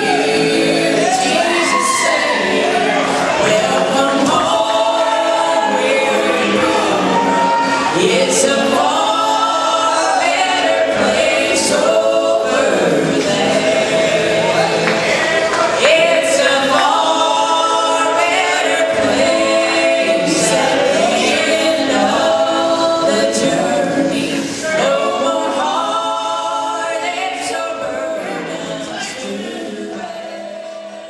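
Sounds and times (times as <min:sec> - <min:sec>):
gospel choir singing in harmony: 0:00.0 - 0:31.0.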